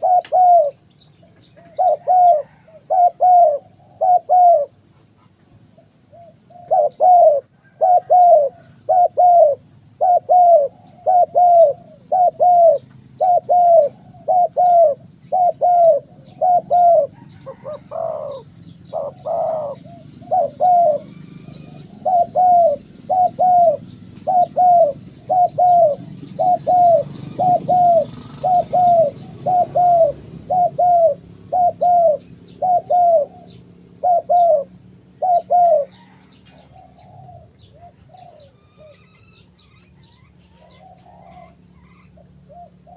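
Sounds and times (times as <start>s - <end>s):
doves cooing: 0.0s - 42.9s.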